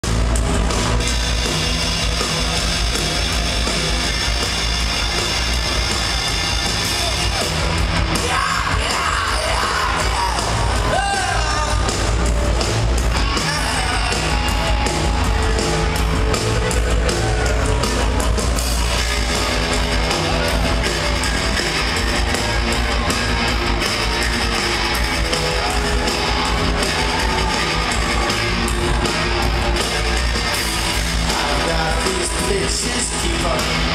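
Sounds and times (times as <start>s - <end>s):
bass guitar: 0.0s - 33.9s
drums: 0.0s - 33.9s
electric guitars: 0.0s - 33.9s
person yelling singing: 8.1s - 11.9s, 13.3s - 14.4s.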